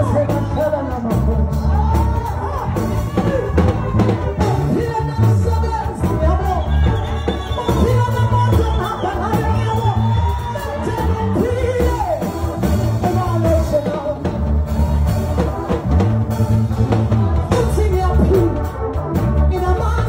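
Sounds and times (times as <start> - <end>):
band with heavy bass line: 0.0 - 20.0.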